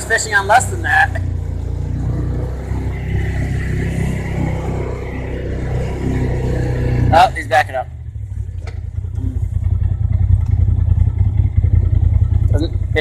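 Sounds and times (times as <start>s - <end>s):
vehicle engine from inside cab: 0.0s - 13.0s.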